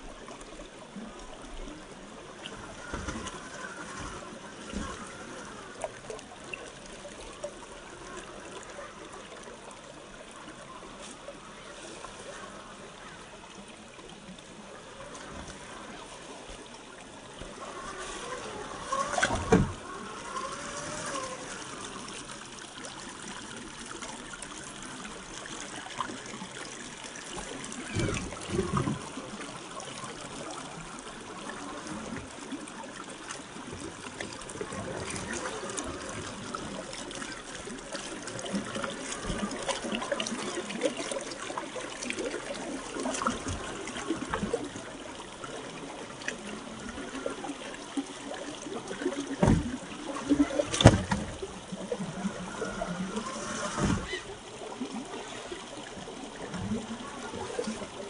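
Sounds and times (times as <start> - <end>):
river water running over rocks: 0.0 - 58.0.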